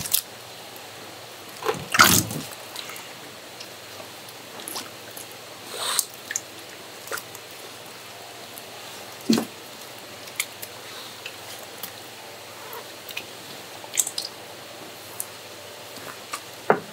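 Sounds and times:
dripping: 1.6s - 12.0s, 12.8s - 14.4s
wet squelches: 1.6s - 14.4s.

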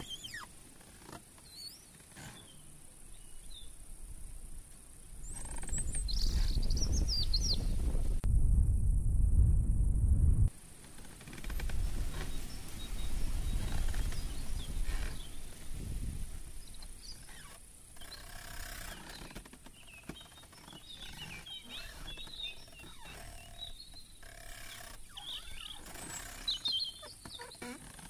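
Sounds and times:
low rumble: 6.7s - 10.5s.

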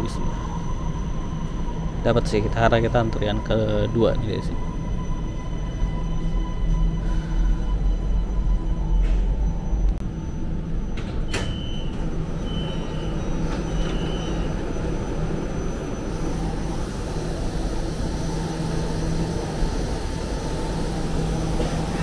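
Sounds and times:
train and station rumble: 0.0s - 22.0s.

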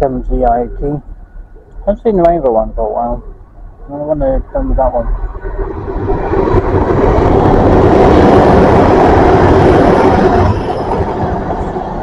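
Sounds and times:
train passing at speed: 5.0s - 12.0s.

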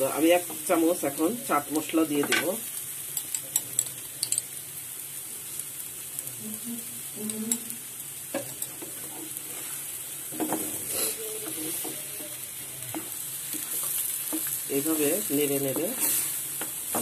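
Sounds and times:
food sizzling in frying pan: 0.0s - 17.0s
spatula scraping pan: 8.4s - 17.0s.

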